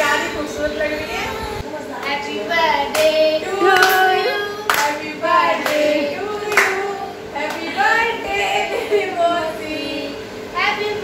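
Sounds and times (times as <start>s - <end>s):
people singing: 2.0s - 10.3s
hand claps: 4.7s - 5.0s, 6.5s - 6.8s.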